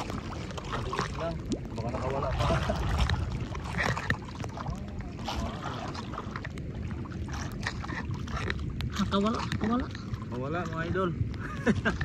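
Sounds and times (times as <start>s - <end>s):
water lapping against boat: 0.0s - 12.0s
wind rumbling on microphone: 0.0s - 12.0s.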